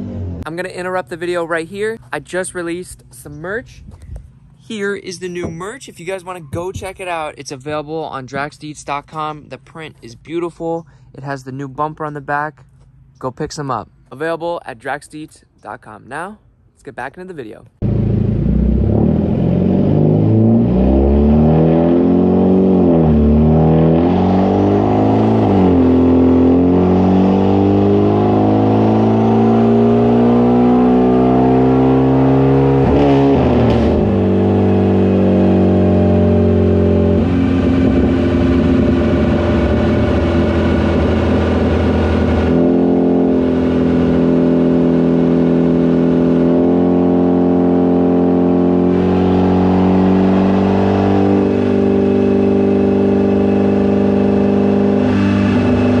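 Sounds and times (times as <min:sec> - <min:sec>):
car engine revving on dyno: 0:17.8 - 0:56.0.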